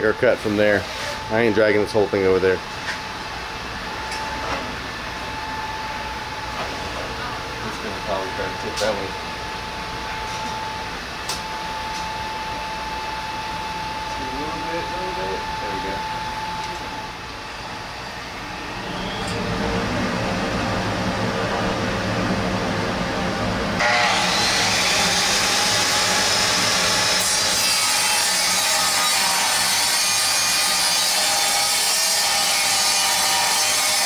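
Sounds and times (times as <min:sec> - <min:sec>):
circular saw motor running: 0:13.2 - 0:27.8.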